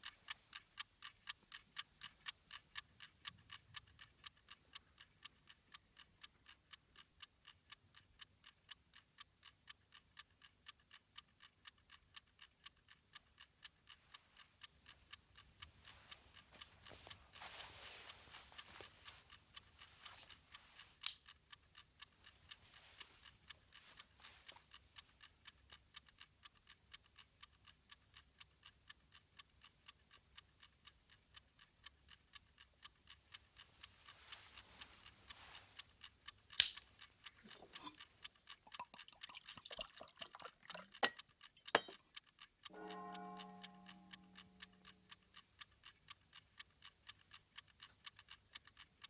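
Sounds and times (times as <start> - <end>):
alarm clock ticking: 0.0 - 49.0
sharp click: 36.5 - 36.9.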